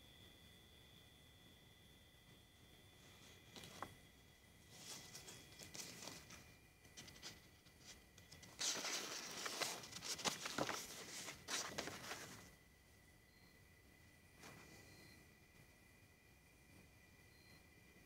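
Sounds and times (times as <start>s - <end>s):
faint steady high tone: 0.0s - 18.0s
close rustling and scratching: 4.6s - 12.5s.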